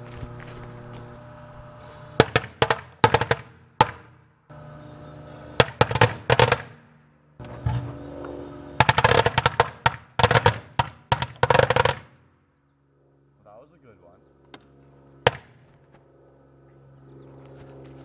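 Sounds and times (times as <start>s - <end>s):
microwave oven hum: 0.0s - 2.5s, 4.5s - 9.1s
firecrackers banging: 2.0s - 4.2s, 5.4s - 6.8s, 8.8s - 12.2s.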